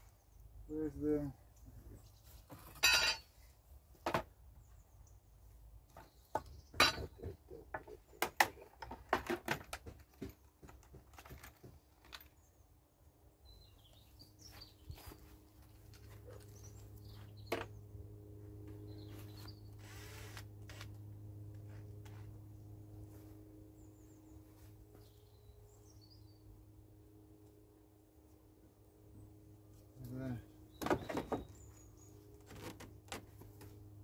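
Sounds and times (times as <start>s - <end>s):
tools clattering while rummaging: 2.6s - 3.3s, 6.8s - 7.2s
low steady hum: 12.4s - 34.0s.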